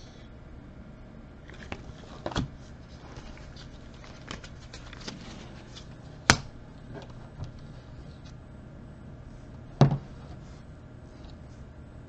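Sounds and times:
trading cards flicking and rustling: 0:01.5 - 0:08.4.

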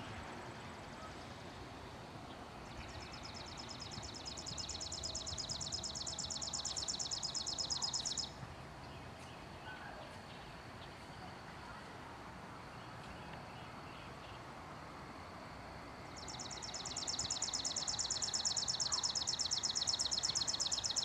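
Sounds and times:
outdoor background hiss: 0:00.0 - 0:21.0.

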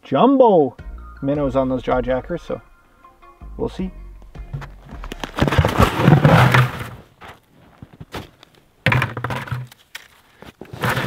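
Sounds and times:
plastic bucket thunking: 0:04.5 - 0:07.0, 0:08.8 - 0:09.7
snow crunching: 0:04.5 - 0:08.6.

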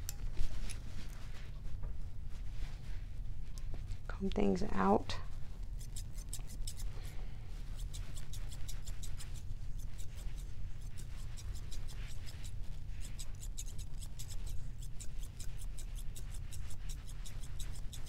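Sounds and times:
steady low hum: 0:00.0 - 0:18.0
shears snipping fur: 0:05.3 - 0:18.0.

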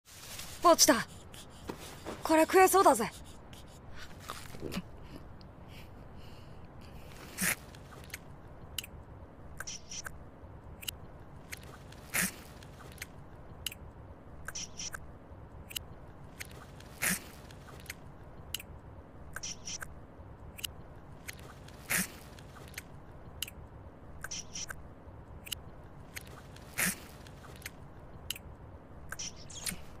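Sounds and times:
chewing with wet clicks: 0:20.6 - 0:23.6, 0:25.4 - 0:28.5.

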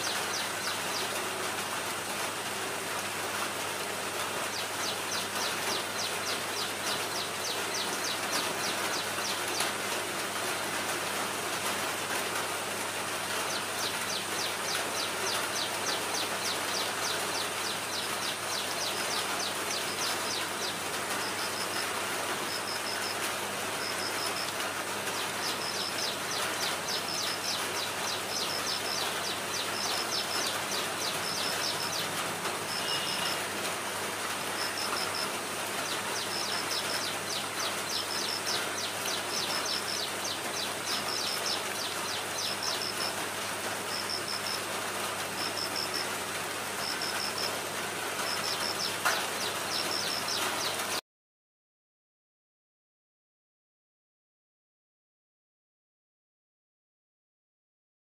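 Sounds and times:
rain falling on foliage: 0:00.0 - 0:51.0.

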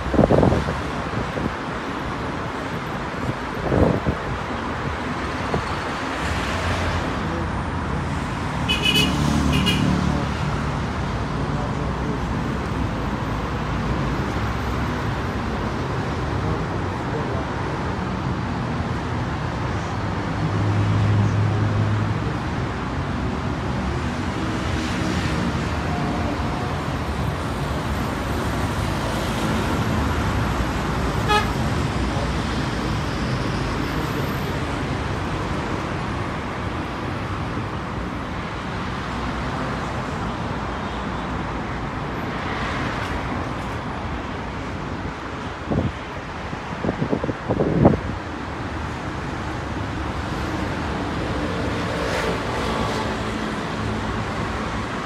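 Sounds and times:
road traffic noise: 0:00.0 - 0:55.0
vehicle horn honk: 0:08.7 - 0:09.8, 0:31.2 - 0:31.6.

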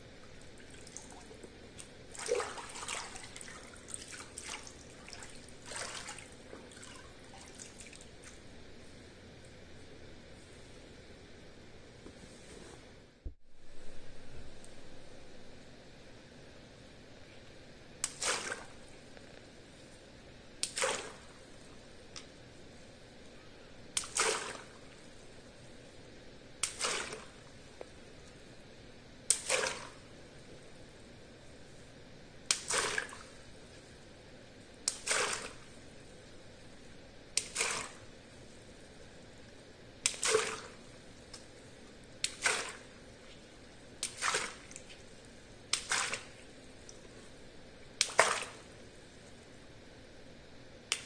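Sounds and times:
water splashing: 0:00.2 - 0:08.4, 0:24.0 - 0:24.8, 0:26.6 - 0:27.4, 0:34.9 - 0:35.7, 0:40.1 - 0:40.8, 0:42.2 - 0:42.9, 0:44.0 - 0:47.1, 0:48.0 - 0:48.7.

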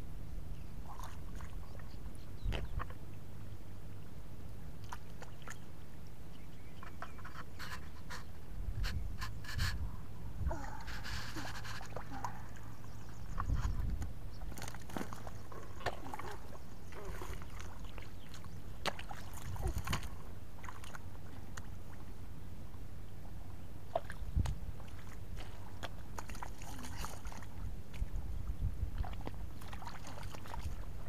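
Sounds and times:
splashing in shallow muddy water: 0:00.8 - 0:03.2, 0:04.7 - 0:05.8, 0:10.5 - 0:22.2, 0:23.8 - 0:31.0.

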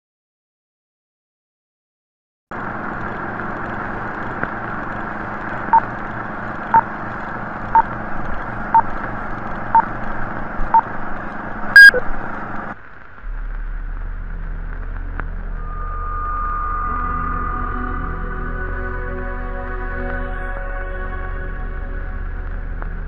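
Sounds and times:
steady hiss and hum: 0:02.5 - 0:23.0
higher beep: 0:11.8 - 0:12.0
short beeps: 0:11.8 - 0:12.0.

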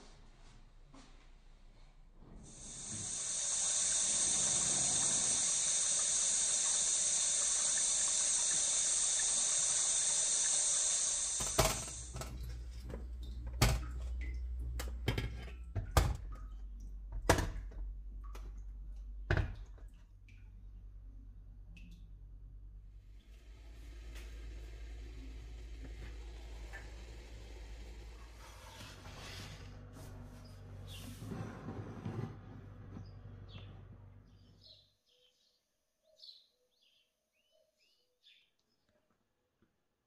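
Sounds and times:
tap water running: 0:02.4 - 0:18.6, 0:23.2 - 0:28.4.

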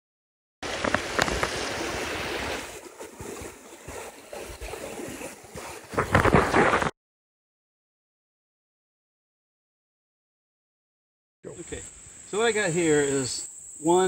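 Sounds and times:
creek water sloshing and splashing: 0:00.6 - 0:06.9.

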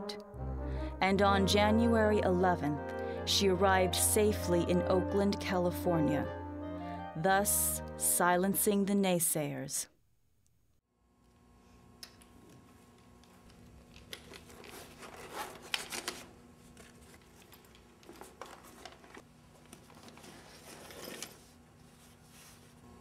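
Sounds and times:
cloth bag rustling and scraping: 0:20.0 - 0:22.8.

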